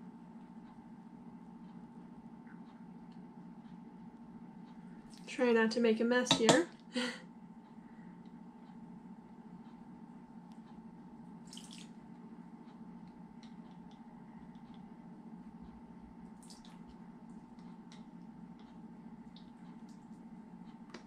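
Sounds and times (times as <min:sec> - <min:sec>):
steady low hum: 0:00.0 - 0:21.0
liquid pouring and dripping: 0:11.4 - 0:12.0, 0:16.4 - 0:17.0
small splashes: 0:11.4 - 0:12.0, 0:16.4 - 0:16.9.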